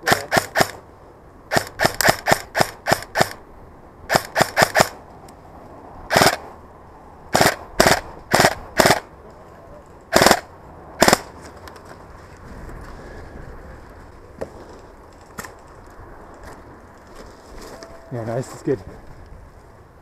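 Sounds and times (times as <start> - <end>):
airsoft rifle shots: 0.0 - 0.8, 1.5 - 3.4, 4.1 - 5.0, 6.1 - 6.5, 7.3 - 9.1, 10.1 - 11.3.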